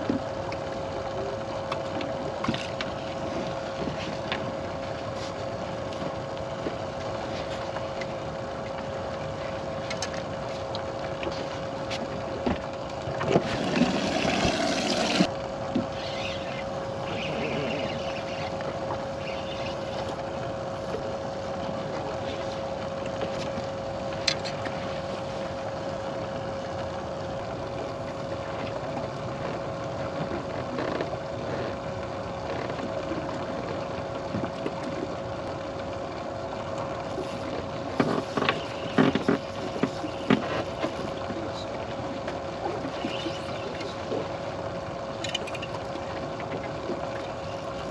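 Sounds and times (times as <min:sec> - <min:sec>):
water noise: 0:00.0 - 0:47.9
wind: 0:00.0 - 0:47.9
electric motor hum: 0:12.2 - 0:21.4
sharp knocks on a boat: 0:38.0 - 0:41.0.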